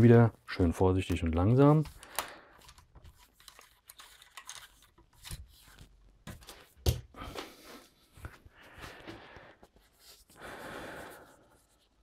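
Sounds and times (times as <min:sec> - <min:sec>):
rustling and small clicks: 0:01.0 - 0:07.0.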